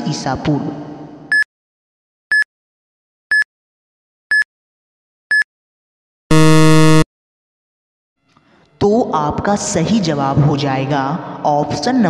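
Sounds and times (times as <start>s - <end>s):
short beeps: 6.3s - 7.0s
time-up buzzer: 6.3s - 7.1s.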